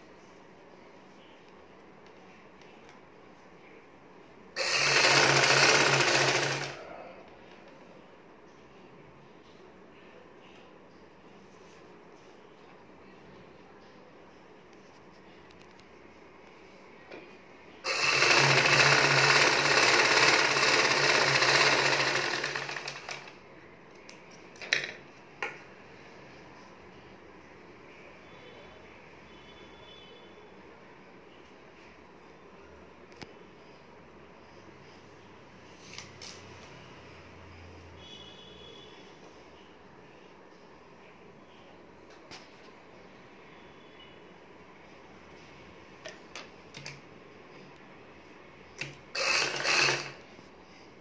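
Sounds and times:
sewing machine stitching: 0:04.6 - 0:06.9, 0:17.9 - 0:23.4, 0:49.1 - 0:50.2.

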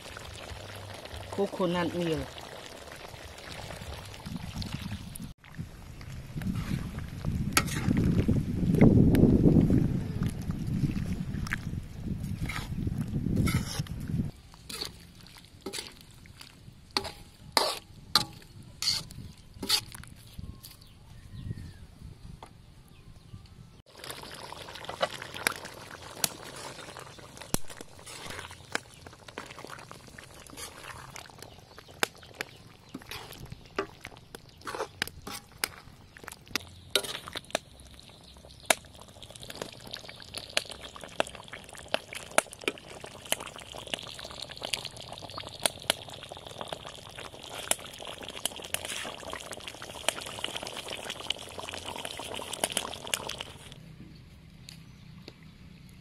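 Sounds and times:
curry bubbling and popping: 0:00.0 - 0:20.2, 0:23.8 - 0:53.8.

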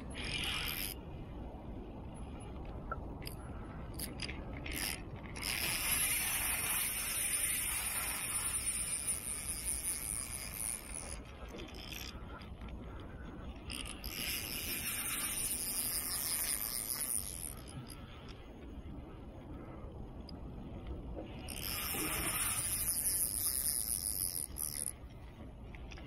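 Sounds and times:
fishing reel gears whirring: 0:00.0 - 0:01.0, 0:03.2 - 0:18.4, 0:21.4 - 0:25.1.

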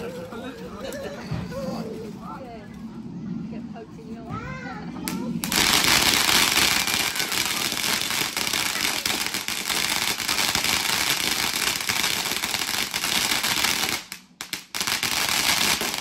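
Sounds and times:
fireworks crackling: 0:05.0 - 0:16.0.

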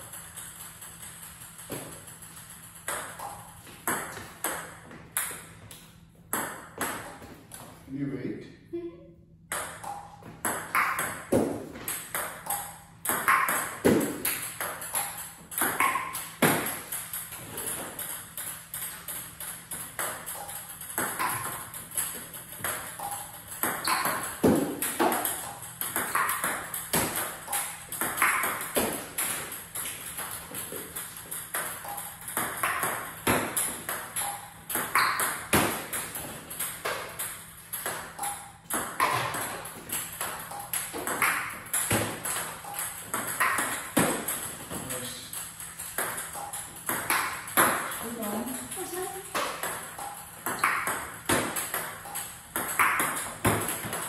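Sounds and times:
table tennis ball clicking: 0:00.0 - 0:04.6, 0:11.9 - 0:44.7, 0:45.3 - 0:54.0
ball bouncing on table: 0:00.1 - 0:07.6, 0:09.5 - 0:54.0.

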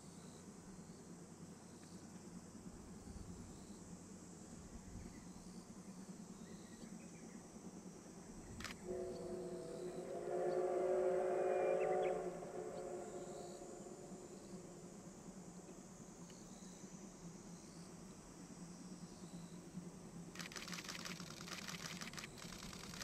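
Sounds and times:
steam locomotive whistle: 0:08.8 - 0:15.0.

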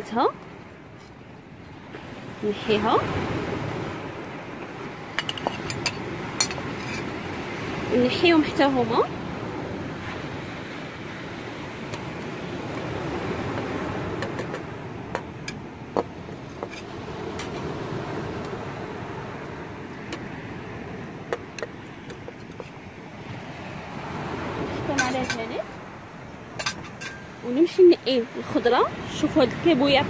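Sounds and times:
sea surf washing: 0:00.0 - 0:30.0
metal spatula clinking on pot: 0:05.2 - 0:07.1, 0:26.6 - 0:27.3.

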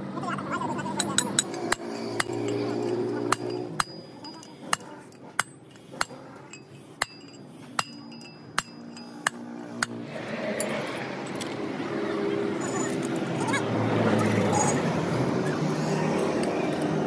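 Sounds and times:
metal drift tapping bearing: 0:00.9 - 0:10.0.

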